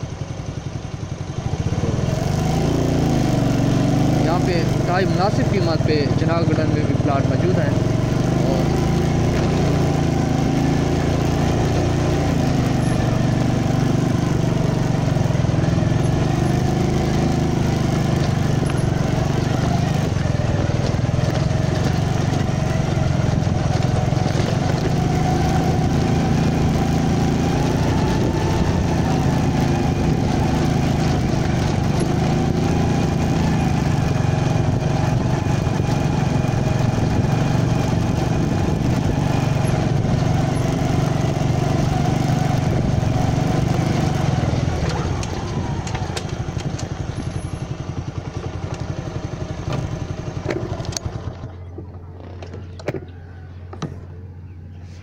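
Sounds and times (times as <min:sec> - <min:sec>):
small motorcycle engine running: 0:00.0 - 0:55.0.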